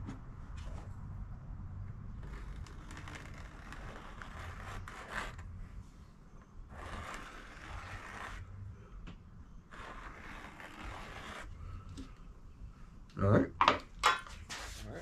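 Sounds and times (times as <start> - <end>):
pencil scratching: 2.2 - 5.5, 6.7 - 8.6, 9.7 - 11.7.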